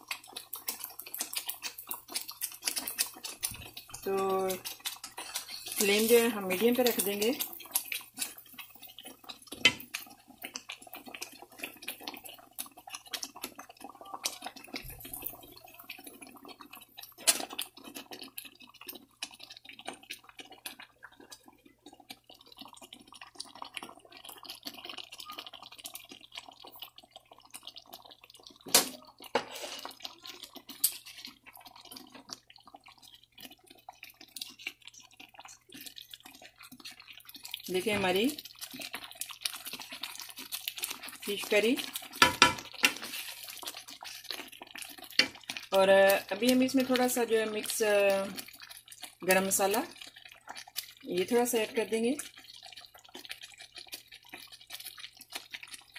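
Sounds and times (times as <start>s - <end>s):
curry bubbling in a pan: 0.0s - 55.9s
wooden spoon stirring: 0.0s - 55.9s
spoon knocking against pan: 42.2s - 42.6s.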